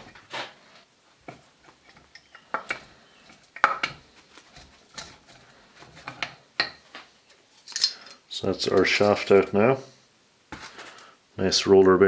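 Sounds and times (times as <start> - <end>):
metallic clinks and knocks: 1.3 - 5.4, 7.6 - 9.0.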